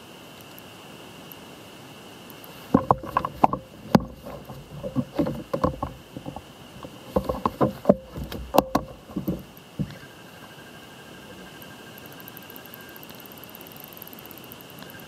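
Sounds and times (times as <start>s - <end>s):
knocks against hollow kayak hull: 2.7s - 10.0s.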